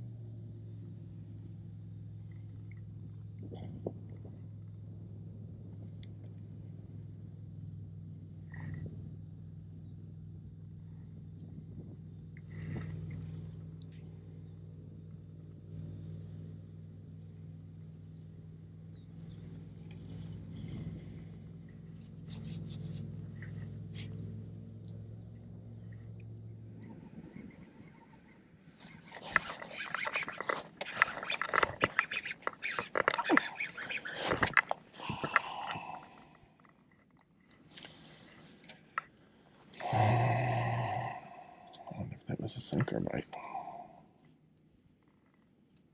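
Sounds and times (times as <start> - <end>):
faint high chirps and squeaks: 15.6 - 16.8, 18.8 - 21.0, 21.6 - 24.4, 25.7 - 34.7
small motor humming: 18.1 - 36.4
fishing reel cranking: 28.8 - 37.2.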